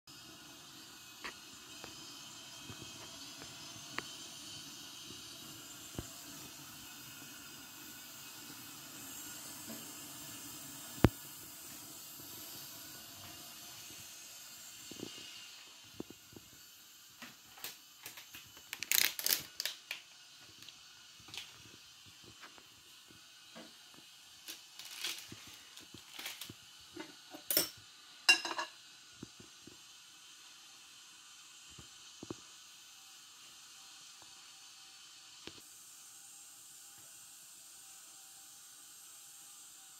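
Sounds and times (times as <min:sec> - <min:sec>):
pot of water hissing on stove: 0:00.1 - 0:39.9
noodle packaging crinkling: 0:18.0 - 0:20.0, 0:24.4 - 0:26.5.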